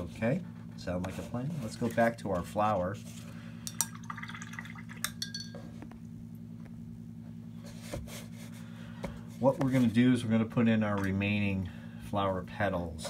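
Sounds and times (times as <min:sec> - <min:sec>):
steady low hum: 0:00.0 - 0:13.0
brush clinking against glass: 0:04.9 - 0:05.7.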